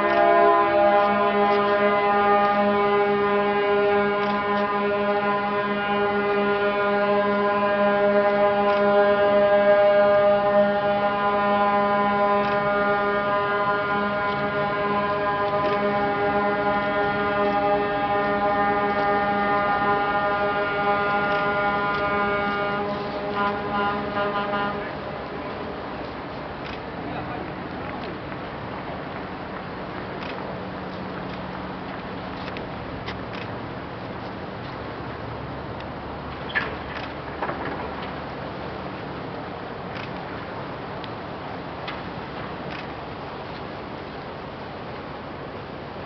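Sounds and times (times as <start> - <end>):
ships' horns sounding together: 0.0 - 26.2.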